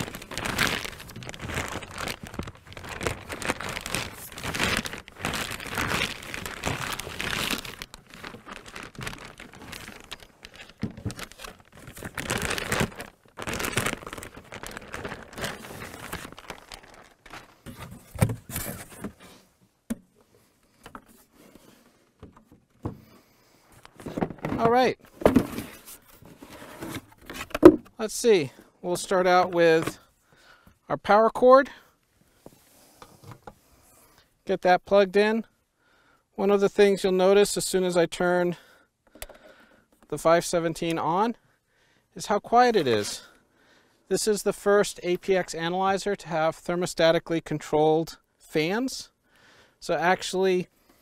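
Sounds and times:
plastic bag crinkling: 0:00.0 - 0:17.8.

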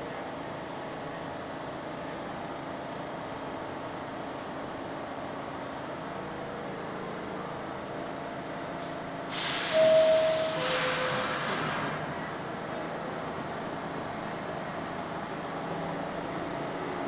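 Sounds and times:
subway train rumbling: 0:00.0 - 0:17.0
loud hiss of air: 0:09.3 - 0:12.1
two held tones: 0:09.7 - 0:11.1.

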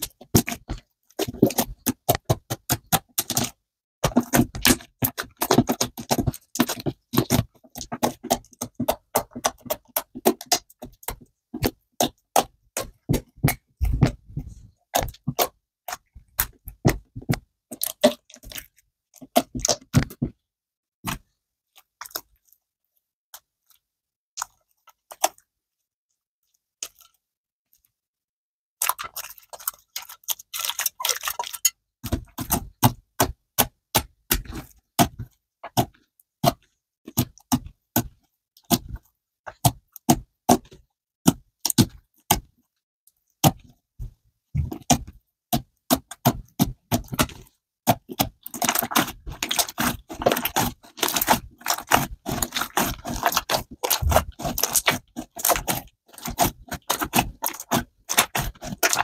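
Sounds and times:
slime clicking and popping: 0:44.7 - 0:59.0.

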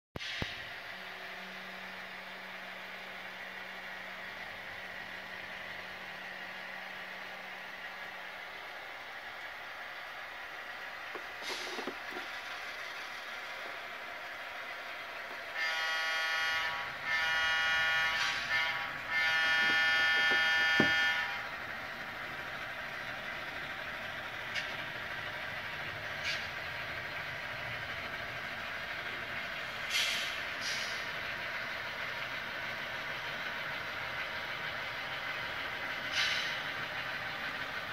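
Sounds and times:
engine hum: 0:00.2 - 0:37.9
model locomotive horn blasts: 0:15.5 - 0:21.5.

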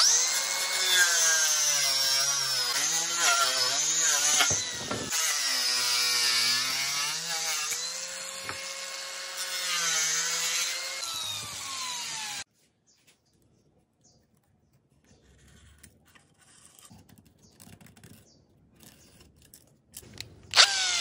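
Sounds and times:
angle grinder cutting wood: 0:00.0 - 0:12.5, 0:20.5 - 0:21.0.

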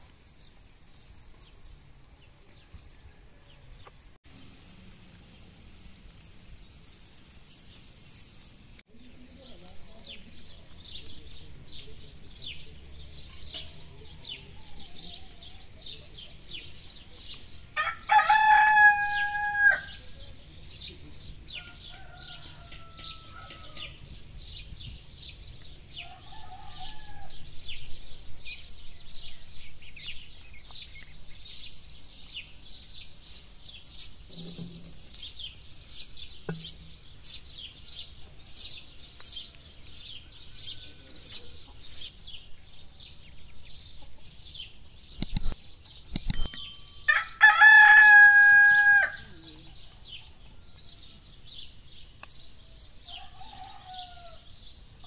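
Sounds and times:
small birds chirping: 0:00.0 - 0:55.0
rooster crowing: 0:17.8 - 0:20.0, 0:21.6 - 0:24.0, 0:26.0 - 0:27.4, 0:47.1 - 0:49.3, 0:53.1 - 0:54.4.

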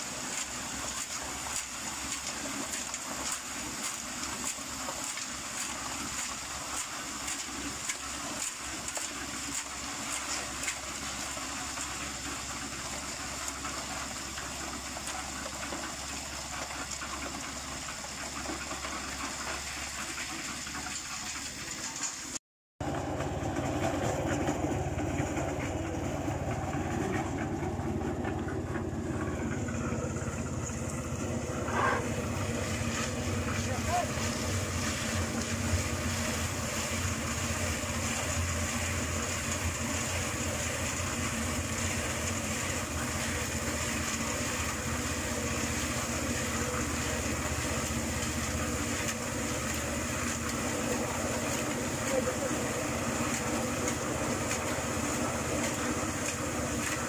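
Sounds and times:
concrete mixer running: 0:00.0 - 0:57.0
wet concrete pouring down chute: 0:00.0 - 0:57.0.

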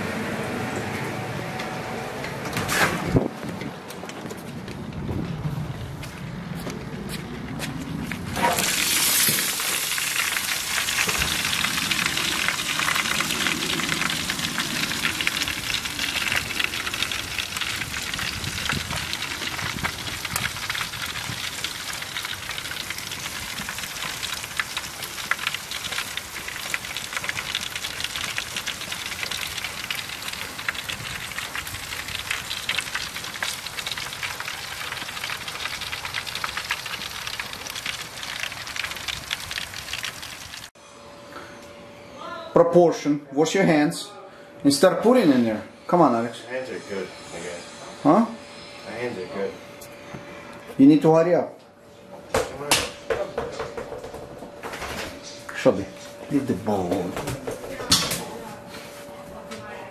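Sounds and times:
food sizzling in hot oil: 0:08.4 - 0:40.8.

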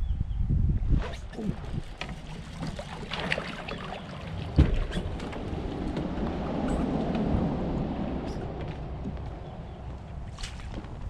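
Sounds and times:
water sloshing: 0:01.2 - 0:11.0
knocks against a kayak: 0:04.5 - 0:05.4.

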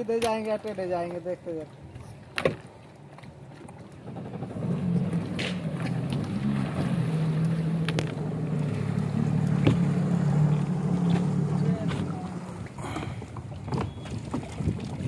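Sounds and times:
jet ski engine idling: 0:03.9 - 0:14.2.

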